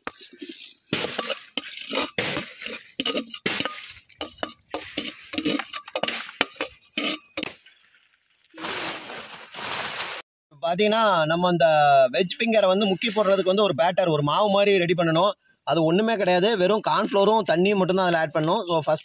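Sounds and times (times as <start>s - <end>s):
steel plate clattering on metal pan: 1.0s - 7.4s.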